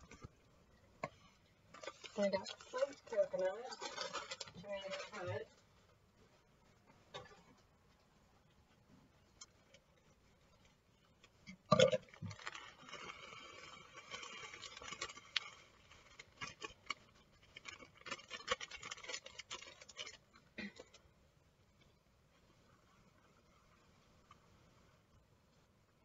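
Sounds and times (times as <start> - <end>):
plastic bag crinkling: 1.7 - 5.6, 11.7 - 21.0.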